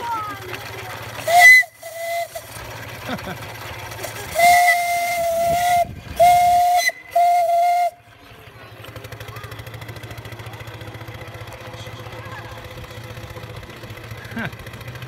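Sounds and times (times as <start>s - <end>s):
steam whistle blasts: 1.2s - 2.5s, 4.3s - 8.0s.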